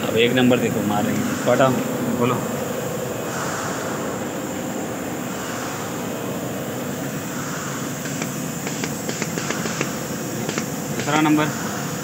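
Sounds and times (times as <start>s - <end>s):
machinery noise: 0.0s - 12.0s
valves clicking sharply: 8.0s - 11.5s.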